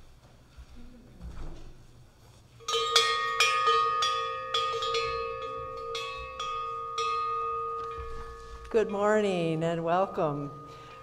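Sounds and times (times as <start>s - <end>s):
hand bell ringing: 2.6s - 11.0s.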